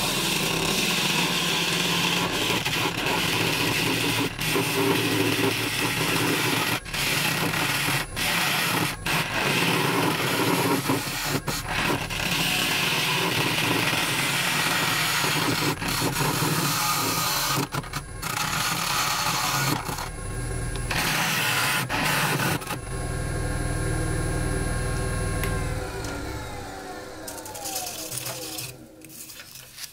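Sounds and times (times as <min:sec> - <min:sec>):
gouge cutting and scraping wood: 0:00.0 - 0:20.1, 0:20.8 - 0:22.9, 0:27.3 - 0:29.9
lathe motor hum: 0:00.0 - 0:29.2.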